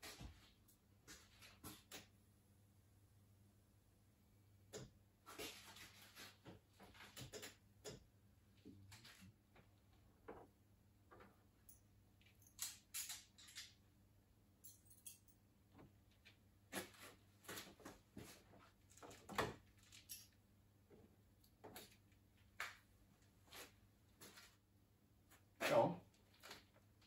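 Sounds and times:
small clicks and rustles: 4.8s - 10.5s, 14.6s - 24.6s, 26.1s - 27.0s.

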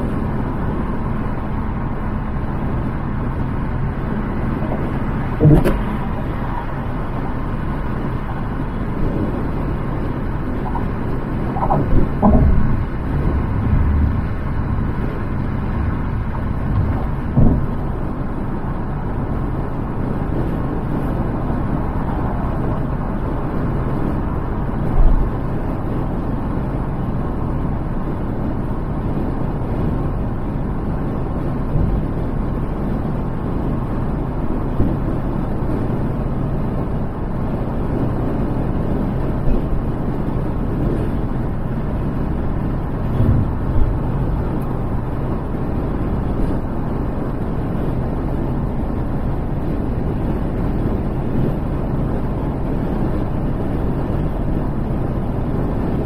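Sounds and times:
car road and wind noise: 0.0s - 56.0s
short thumps: 4.6s - 6.6s, 10.6s - 17.9s, 43.0s - 44.9s.

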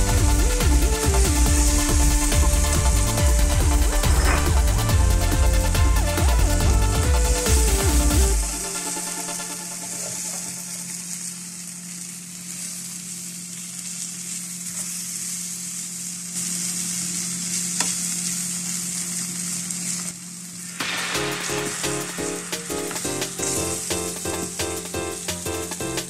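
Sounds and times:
music: 0.0s - 11.6s, 20.7s - 26.0s
food sizzling in a frying pan: 0.0s - 26.0s.

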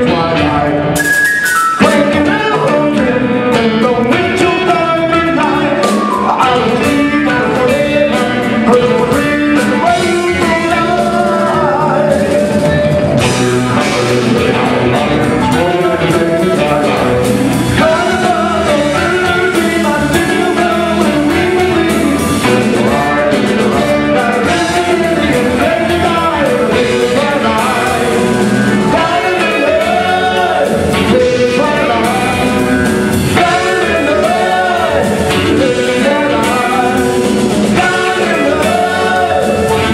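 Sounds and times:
man singing: 0.0s - 1.0s, 1.8s - 39.9s
drum kit: 0.0s - 39.9s
electric guitar: 0.0s - 39.9s
marimba: 1.0s - 2.8s.

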